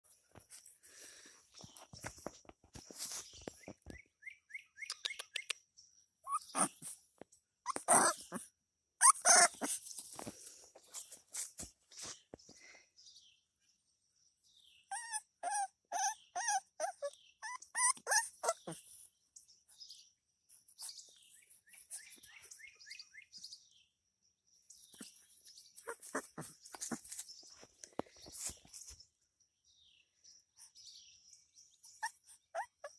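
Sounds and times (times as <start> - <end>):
puppy whining: 6.3 - 6.9, 7.6 - 9.8, 14.9 - 18.9, 25.8 - 27.2, 31.9 - 32.9.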